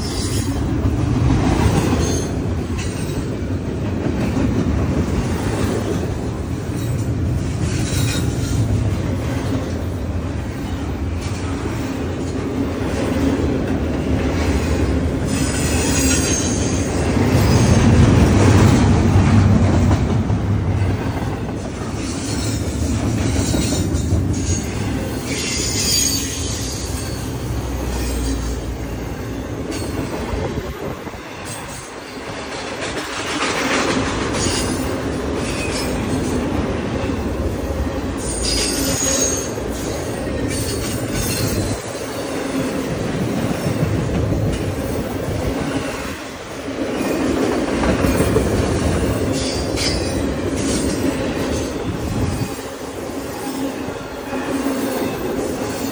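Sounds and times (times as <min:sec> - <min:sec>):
train wheels rumbling on rails: 0:00.0 - 0:55.9
high wheel squeals: 0:22.0 - 0:30.0, 0:38.2 - 0:42.3.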